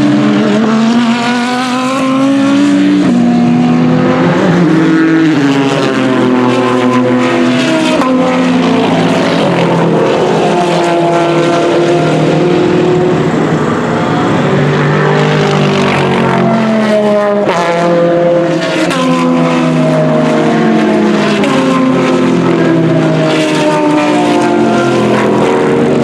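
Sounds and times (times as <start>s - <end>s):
race car engines accelerating: 0.0s - 26.0s.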